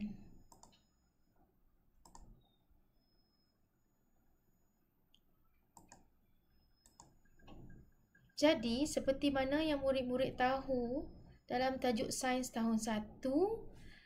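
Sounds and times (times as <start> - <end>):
faint computer mouse clicks: 0.5 - 0.9, 2.0 - 2.6, 5.1 - 6.1, 6.8 - 8.3.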